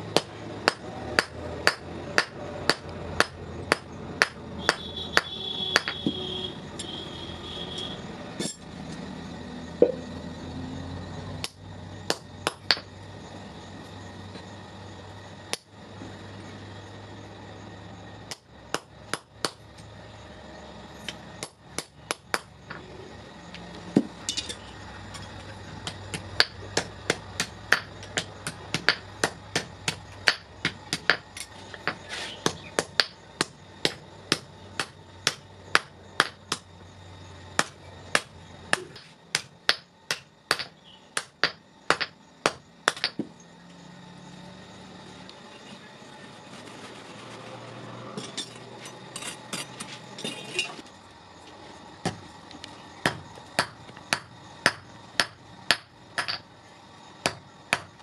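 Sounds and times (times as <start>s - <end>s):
hammer striking metal on anvil: 0.2s - 6.1s.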